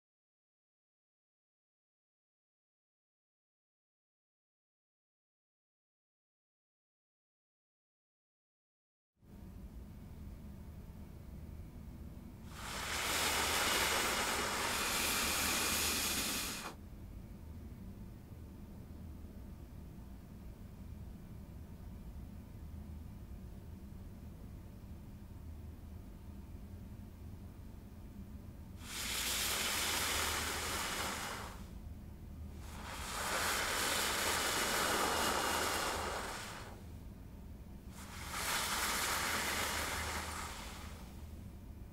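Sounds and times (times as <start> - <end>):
person blowing hard: 12.5 - 16.8, 28.8 - 31.7, 32.6 - 36.8, 37.9 - 41.2
rushing hiss of air: 12.5 - 16.8, 28.8 - 31.8, 32.6 - 36.9, 37.9 - 41.4.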